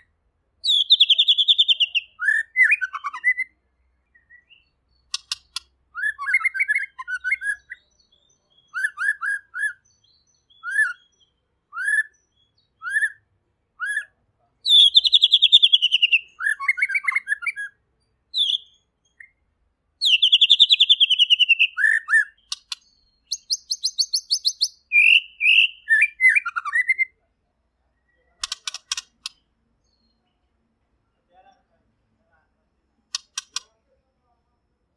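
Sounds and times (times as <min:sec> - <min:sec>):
bird singing whistles and trills: 0:00.0 - 0:19.4, 0:20.0 - 0:27.2.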